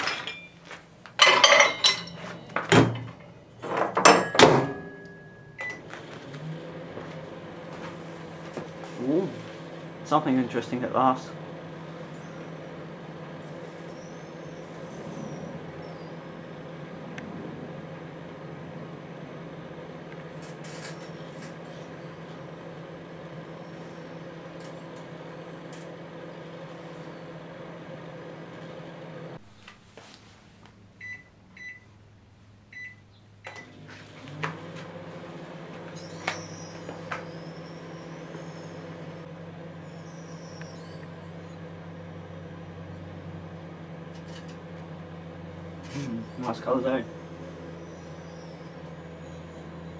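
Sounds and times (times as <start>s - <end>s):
microwave oven humming: 0.0s - 30.0s, 30.6s - 49.9s.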